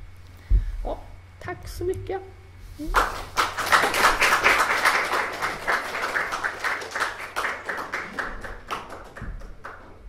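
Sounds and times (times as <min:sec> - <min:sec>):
audience applauding: 0:02.9 - 0:10.0.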